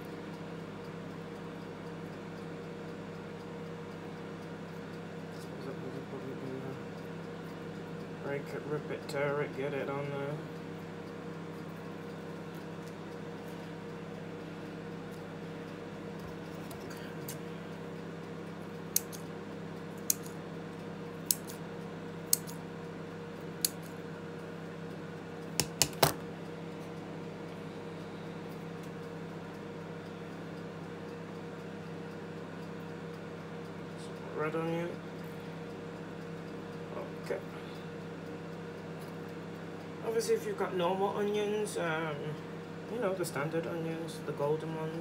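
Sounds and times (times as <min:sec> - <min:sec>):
scissors snipping meat: 0:20.0 - 0:20.4, 0:21.2 - 0:21.6, 0:22.3 - 0:22.6.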